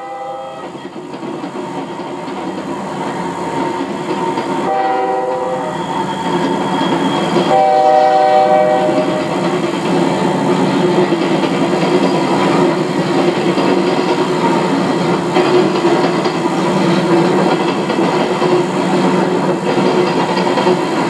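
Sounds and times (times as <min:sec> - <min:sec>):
locomotive air horn blasts: 0:00.0 - 0:00.7, 0:04.7 - 0:05.8, 0:07.5 - 0:09.3
train rumbling on rails: 0:00.0 - 0:21.0.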